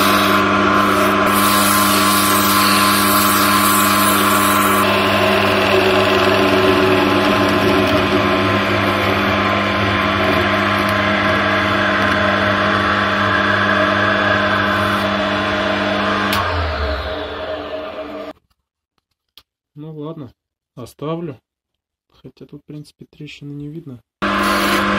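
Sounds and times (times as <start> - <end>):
turning tool scraping wood: 0.0 - 11.4
wood lathe motor hum: 0.0 - 18.3.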